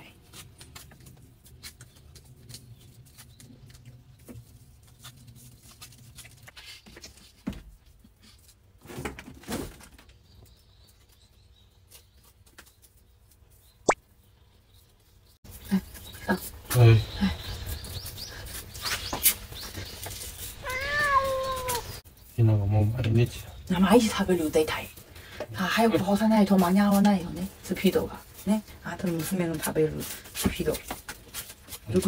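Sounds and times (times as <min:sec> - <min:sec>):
rustling: 0:17.5 - 0:22.4.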